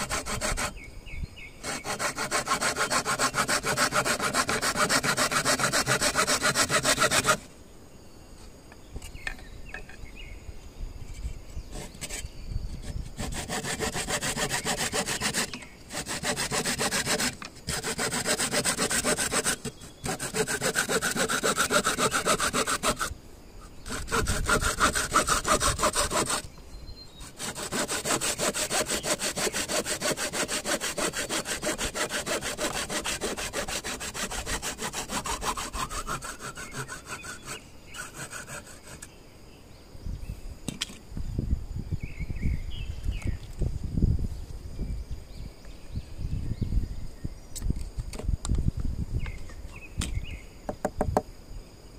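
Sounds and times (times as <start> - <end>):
saw cutting bamboo: 0.0 - 0.8, 1.6 - 7.5, 11.7 - 23.1, 23.8 - 26.5, 27.2 - 39.1.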